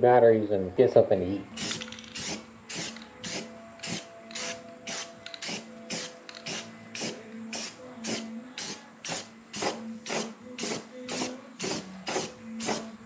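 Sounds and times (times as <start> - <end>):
aerosol spray bursts: 1.6 - 12.9.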